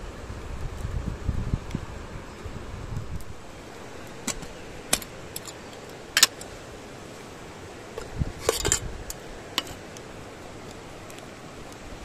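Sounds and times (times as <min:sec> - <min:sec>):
metal kettle lid clinking: 0:08.0 - 0:08.8.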